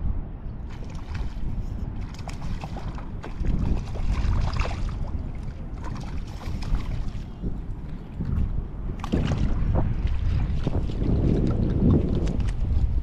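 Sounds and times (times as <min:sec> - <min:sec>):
wind buffeting microphone: 0:00.0 - 0:13.0
fish splashing in water: 0:00.7 - 0:07.4.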